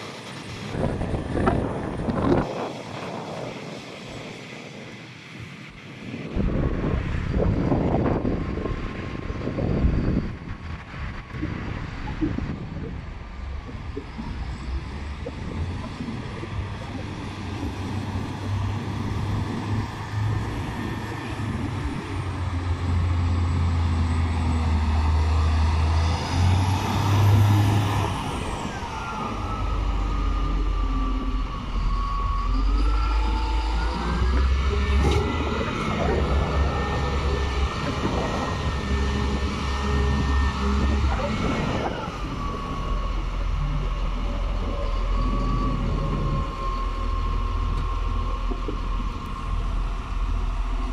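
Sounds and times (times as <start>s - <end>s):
high whine: 0.0s - 50.9s
diesel engine revving: 13.9s - 50.9s.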